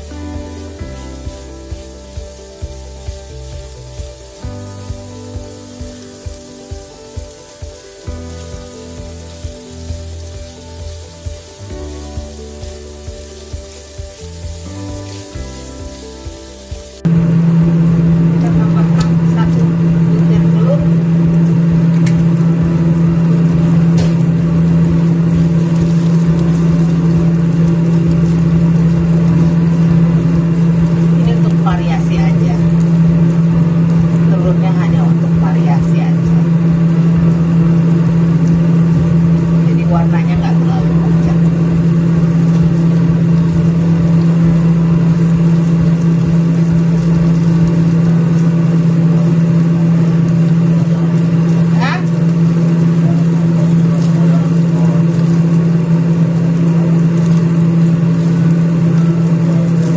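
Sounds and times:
kitchen appliance humming: 0.0s - 59.9s
meat sizzling in a frying pan: 0.0s - 59.9s.

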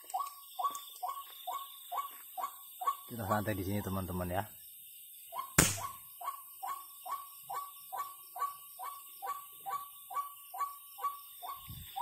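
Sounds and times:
sharp click: 5.6s - 5.9s.

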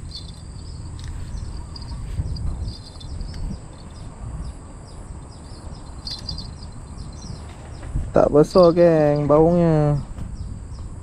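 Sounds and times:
low rumble: 0.0s - 8.2s
insects chirping: 0.0s - 9.6s
birds chirping in trills: 0.0s - 11.0s.

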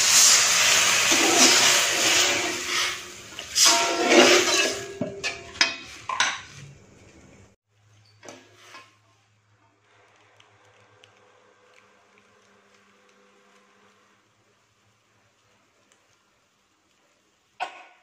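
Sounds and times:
hiss from hot pan: 0.0s - 4.8s
metal spatula scraping a wok: 0.0s - 6.7s, 8.2s - 9.0s.

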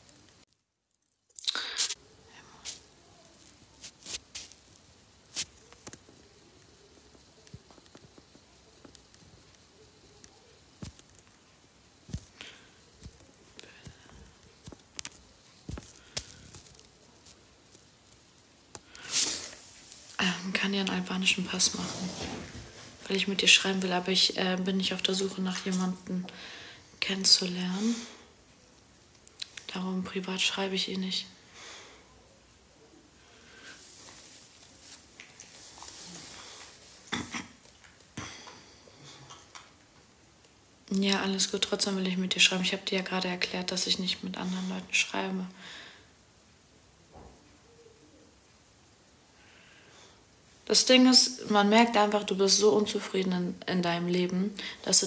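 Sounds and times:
room hiss: 0.0s - 55.0s
rustling of body movement: 2.6s - 9.6s, 10.2s - 18.1s, 18.9s - 24.1s, 33.5s - 38.1s.

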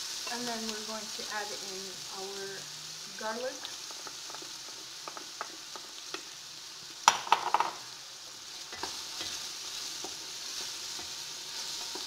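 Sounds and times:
garlic and onions sizzling in oil: 0.0s - 12.0s
knock and clatter against pot: 7.1s - 7.8s.

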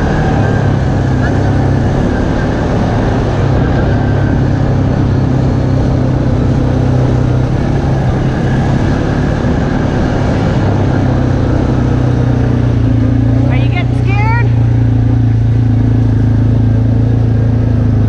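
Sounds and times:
atv engine droning: 0.0s - 18.0s
wind noise: 0.0s - 18.0s.

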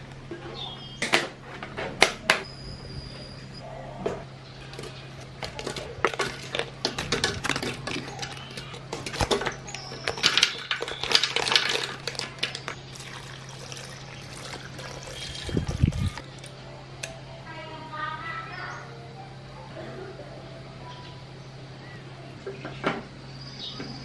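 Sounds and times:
milk pouring splash: 12.9s - 16.3s.

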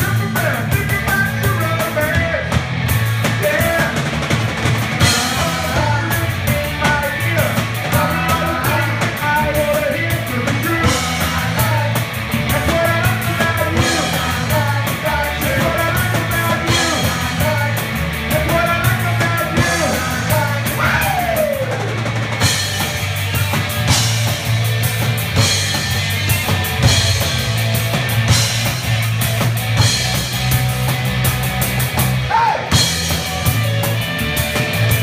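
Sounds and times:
lead singer singing: 0.0s - 2.5s, 5.0s - 22.1s
bass guitar: 0.0s - 35.0s
drum kit: 0.0s - 35.0s
electric guitar: 0.0s - 35.0s.

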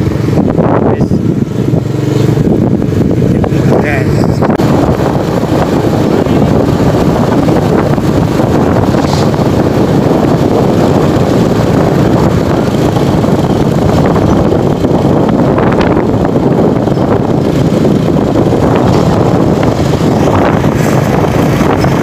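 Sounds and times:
motorcycle engine: 0.0s - 22.0s
road noise: 0.0s - 22.0s
wind rumbling on microphone: 0.0s - 22.0s.

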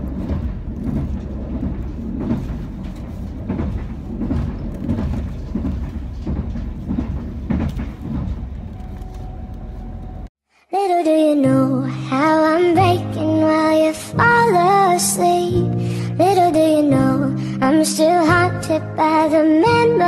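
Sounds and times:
moving train rumble: 0.0s - 10.3s
train knocks and clatters: 0.0s - 10.3s.

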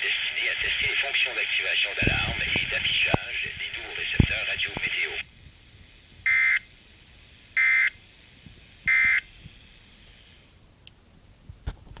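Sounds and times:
buzzy data chirps from radio: 0.0s - 5.3s, 6.2s - 6.8s, 7.5s - 8.0s, 8.8s - 10.4s
faint receiver hiss: 0.0s - 12.0s.

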